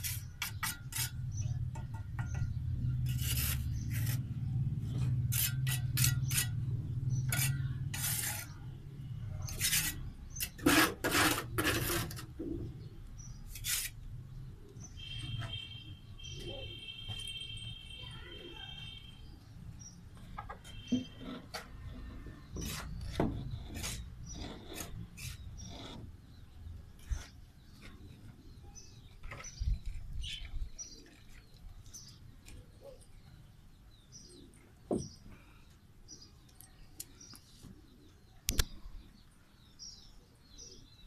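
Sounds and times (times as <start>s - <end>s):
small birds chirping: 0.0s - 41.0s
sharp knocks and clicks: 1.6s - 2.6s.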